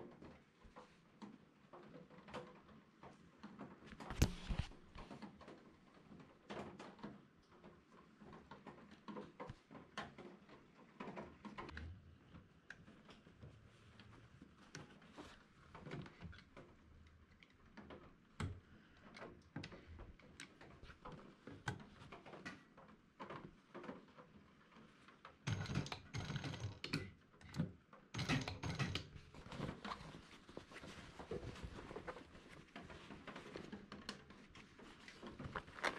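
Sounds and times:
sewing machine rapid stitching: 25.5 - 26.9, 28.2 - 29.1
canvas and zipper rustling: 34.5 - 35.9.

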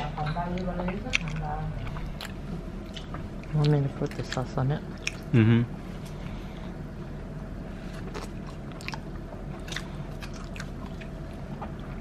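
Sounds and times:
person chewing food: 1.1 - 5.3, 7.8 - 12.0.

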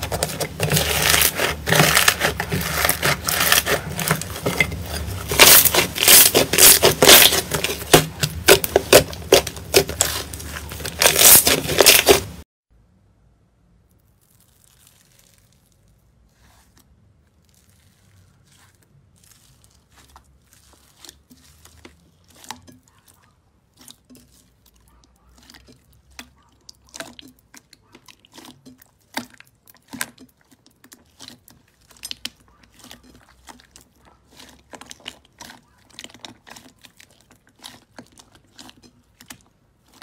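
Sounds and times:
slime crackling and popping: 0.0 - 12.4, 13.8 - 22.6.

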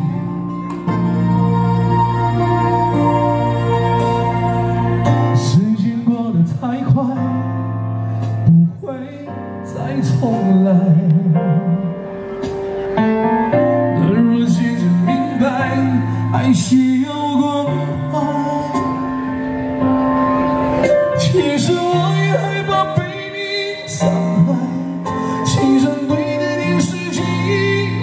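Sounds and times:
sustained keyboard chords: 0.0 - 28.0
man singing with vibrato: 3.8 - 7.8, 8.4 - 12.3, 13.9 - 19.5, 21.1 - 28.0.

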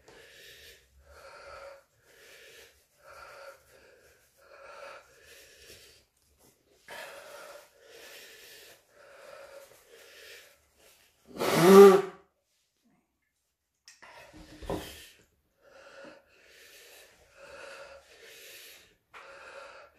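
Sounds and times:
man breathing hard: 0.0 - 6.1, 6.8 - 11.1, 14.3 - 19.9
man blowing his nose: 11.3 - 12.3.

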